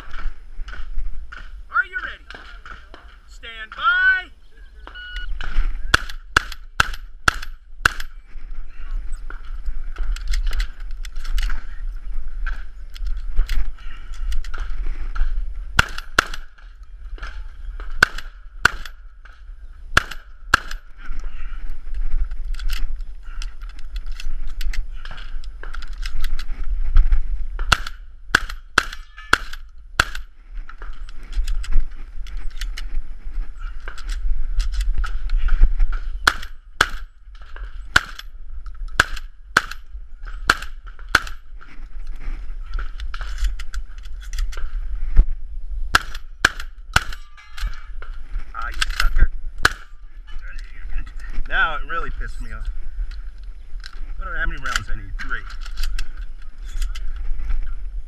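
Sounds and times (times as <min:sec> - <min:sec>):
shotgun firing: 0:05.4 - 0:08.1, 0:15.8 - 0:16.6, 0:17.9 - 0:19.0, 0:19.9 - 0:20.8, 0:27.6 - 0:30.3, 0:36.2 - 0:37.1, 0:37.9 - 0:38.3, 0:39.0 - 0:39.8, 0:40.4 - 0:41.4, 0:45.9 - 0:47.2, 0:49.6 - 0:49.9
shells loaded into shotgun: 0:10.0 - 0:11.8, 0:22.2 - 0:26.6, 0:30.8 - 0:32.9, 0:33.8 - 0:35.4, 0:42.7 - 0:44.8, 0:46.0 - 0:51.5, 0:52.5 - 0:57.3.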